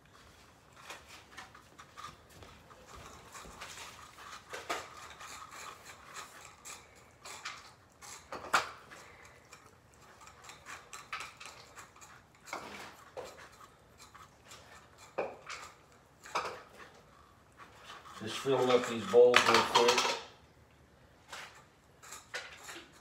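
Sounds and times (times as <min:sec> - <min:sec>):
utensil clinking against dishes: 0:17.8 - 0:20.4.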